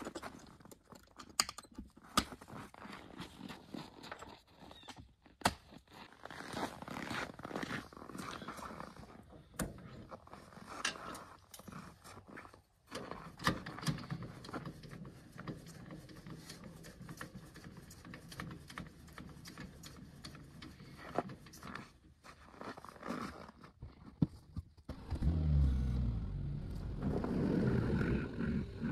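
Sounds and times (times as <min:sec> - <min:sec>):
metal clicks and clanks: 0:00.0 - 0:02.3, 0:12.9 - 0:21.8.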